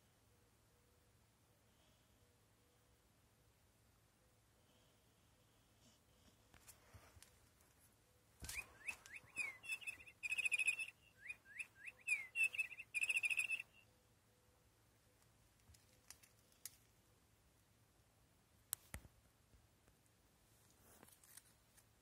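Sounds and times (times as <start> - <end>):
toy mouse chirping: 8.9 - 10.9, 12.0 - 13.8.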